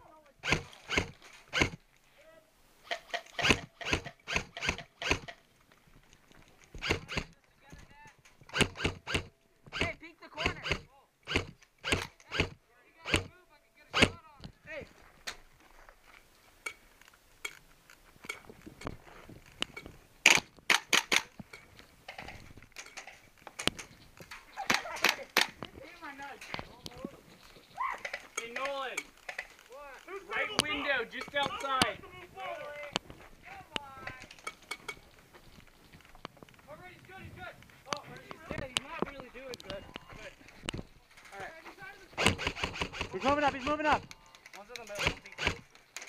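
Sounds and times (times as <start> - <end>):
airsoft gun shots: 3.4 - 5.3, 8.5 - 13.3, 14.0 - 14.2, 42.2 - 43.6.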